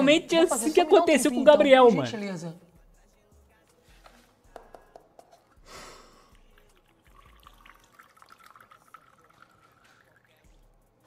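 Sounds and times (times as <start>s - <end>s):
urine trickling into a cup: 6.3s - 11.0s.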